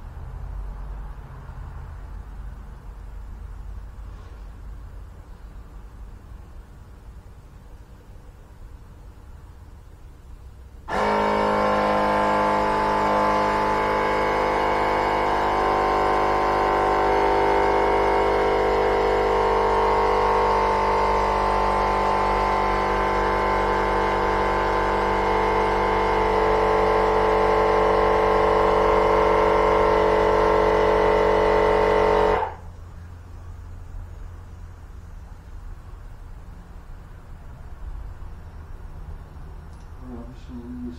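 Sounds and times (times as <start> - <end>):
electric tire inflator running: 10.8 - 32.8.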